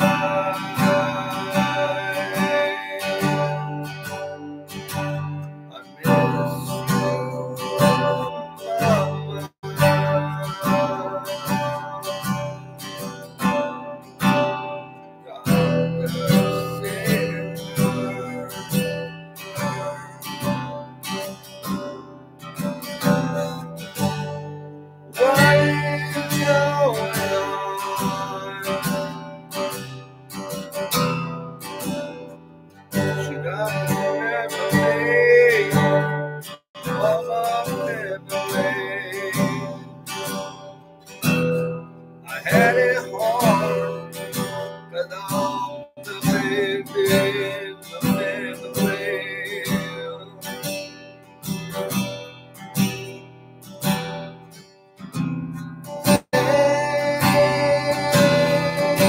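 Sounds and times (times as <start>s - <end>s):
man singing: 0.0s - 14.4s, 15.2s - 20.9s, 22.6s - 24.5s, 25.1s - 32.2s, 32.9s - 41.5s, 42.2s - 51.0s, 56.1s - 59.0s
strummed acoustic guitar: 0.0s - 59.0s.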